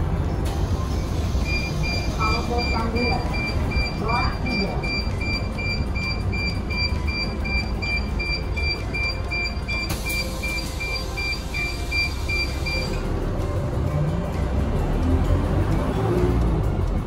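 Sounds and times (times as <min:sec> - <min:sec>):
diesel engine rumble: 0:00.0 - 0:17.0
door warning beeps: 0:01.4 - 0:13.0
pneumatic door air hiss: 0:09.8 - 0:13.0.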